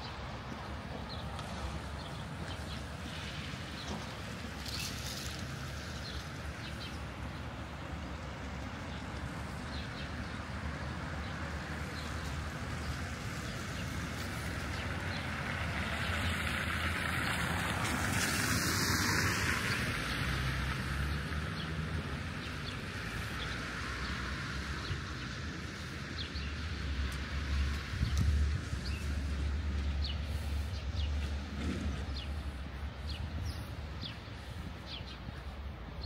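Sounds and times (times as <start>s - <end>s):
distant traffic hum: 0.0s - 36.0s
vehicle passing by: 12.8s - 36.0s.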